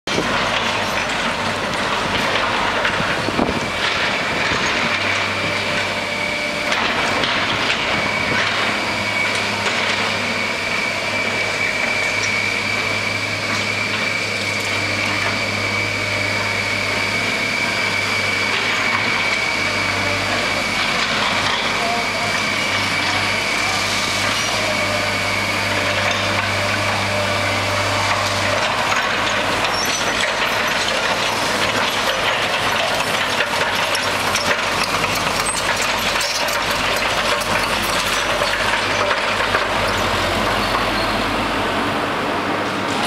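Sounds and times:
excavators running: 0:00.1 - 0:43.0
steady high whine: 0:01.2 - 0:33.5.

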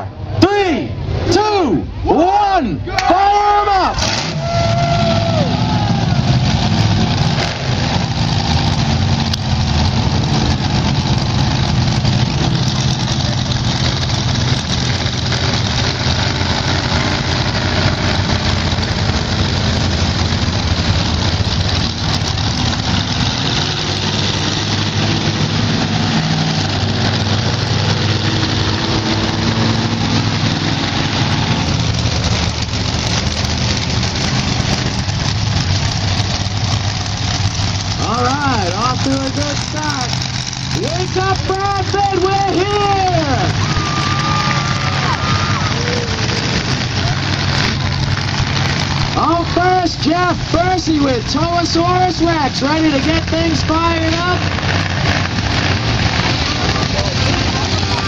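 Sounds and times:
truck engines idling: 0:00.0 - 0:58.0.

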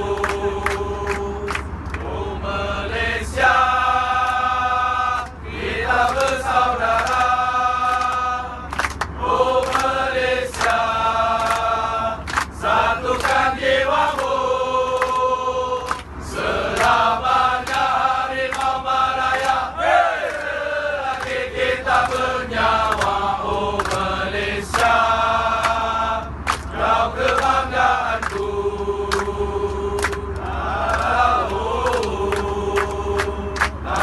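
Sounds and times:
crowd singing a chant: 0:00.0 - 0:34.0
low cabin hum: 0:00.0 - 0:34.0
hand claps: 0:00.1 - 0:02.1, 0:06.0 - 0:07.3, 0:07.9 - 0:10.8, 0:11.4 - 0:13.4, 0:14.1 - 0:16.1, 0:17.6 - 0:17.9, 0:18.5 - 0:19.6, 0:20.2 - 0:20.5, 0:21.1 - 0:23.2, 0:23.8 - 0:24.1, 0:24.7 - 0:25.0, 0:25.6 - 0:25.8, 0:26.4 - 0:28.5, 0:29.1 - 0:34.0.

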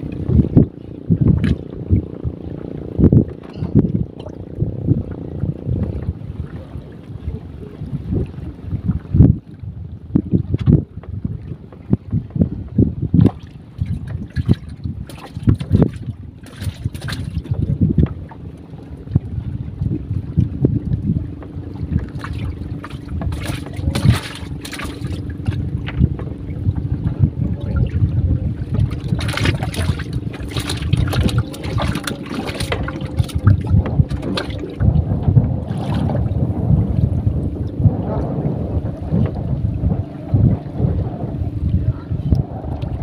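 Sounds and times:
wind buffeting microphone: 0:00.0 - 0:43.0
steady hum: 0:15.9 - 0:43.0.

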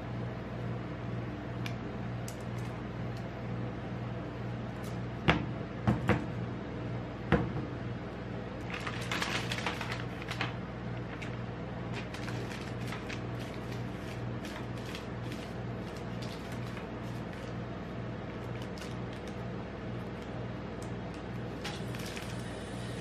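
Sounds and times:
wrappers crinkling: 0:08.6 - 0:17.6, 0:18.4 - 0:19.5, 0:21.5 - 0:22.6.

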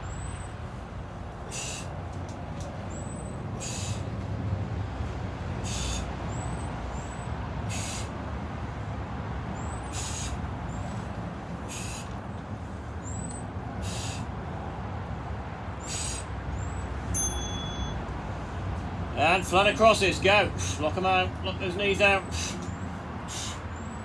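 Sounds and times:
steady low rumble: 0:00.0 - 0:17.2
man exhaling heavily: 0:01.4 - 0:02.0, 0:03.6 - 0:04.1, 0:05.6 - 0:06.2, 0:07.7 - 0:08.2, 0:09.9 - 0:10.4, 0:11.6 - 0:12.2, 0:13.8 - 0:14.3, 0:23.3 - 0:23.7
short timer beep: 0:17.2 - 0:18.0.

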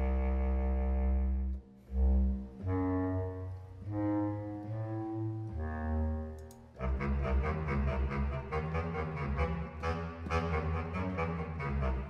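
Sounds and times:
bass clarinet notes: 0:00.0 - 0:12.0.

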